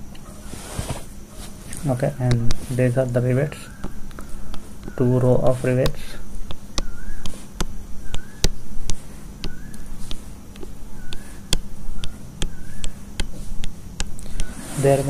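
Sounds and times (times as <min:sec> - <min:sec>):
stylus squeaking on surface: 0:01.3 - 0:15.0
stylus tip clicking: 0:05.8 - 0:14.5.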